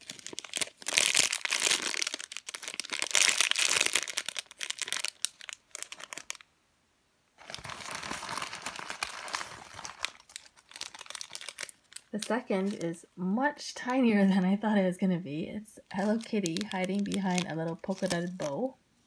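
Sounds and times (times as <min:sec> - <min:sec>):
plastic bag crinkling: 0:00.0 - 0:06.4, 0:07.4 - 0:13.0, 0:15.8 - 0:18.7.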